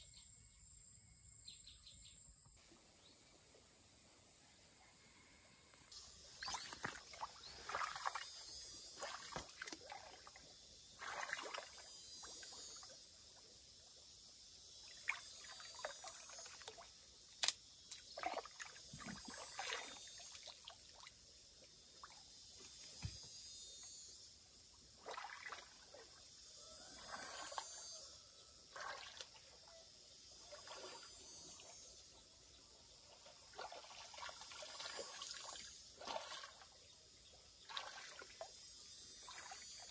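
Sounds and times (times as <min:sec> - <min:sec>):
water trickling and splashing: 0:06.3 - 0:12.9, 0:14.8 - 0:22.4, 0:25.0 - 0:26.2, 0:26.8 - 0:27.9, 0:28.7 - 0:29.6, 0:30.3 - 0:31.8, 0:33.0 - 0:36.9, 0:37.6 - 0:38.6.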